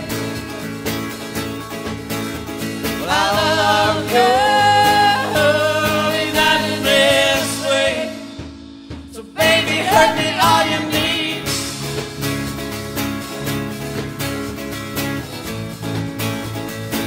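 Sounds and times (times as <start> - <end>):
live rock band: 0.0 - 17.0
woman singing: 3.0 - 8.3, 9.2 - 11.6.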